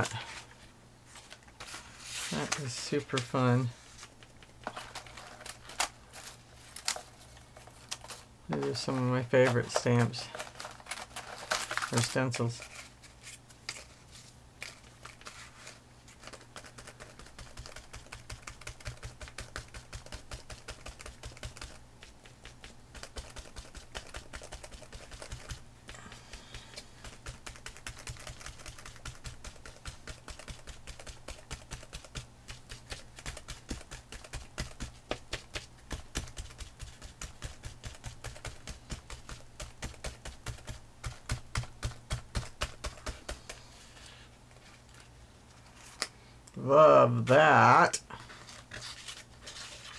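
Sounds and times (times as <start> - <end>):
sponge tapping on paper: 27.0 - 43.6.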